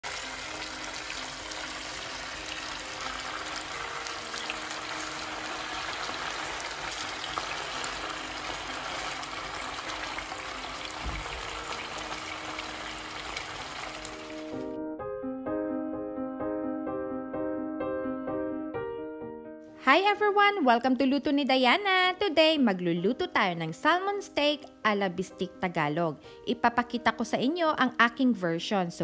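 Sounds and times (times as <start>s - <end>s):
fish sizzling in hot oil: 0.0s - 14.7s.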